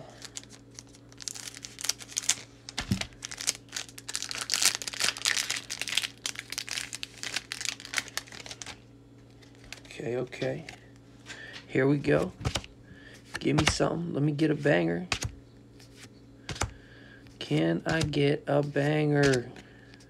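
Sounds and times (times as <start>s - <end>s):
foil wrapper crinkling: 0.0s - 10.0s.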